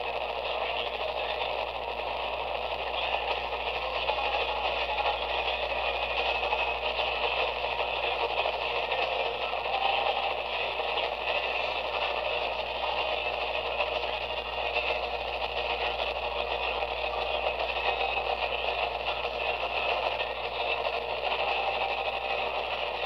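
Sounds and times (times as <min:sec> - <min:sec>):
radio static hiss and crackle: 0:00.0 - 0:23.0
weak distant radio station: 0:00.0 - 0:23.0.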